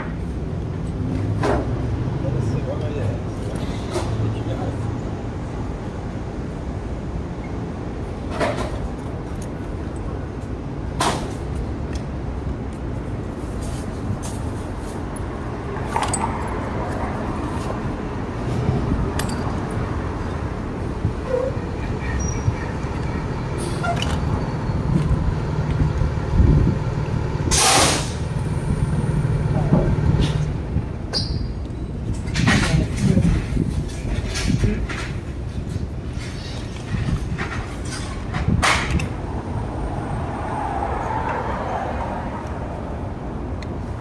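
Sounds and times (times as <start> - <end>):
city traffic rumble: 0.0 - 44.0
truck engine hum: 16.6 - 32.1
short loud hiss: 27.5 - 28.2.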